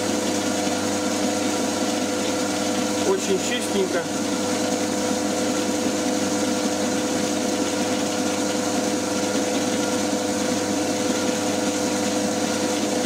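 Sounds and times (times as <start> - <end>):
lathe motor running: 0.0 - 13.0.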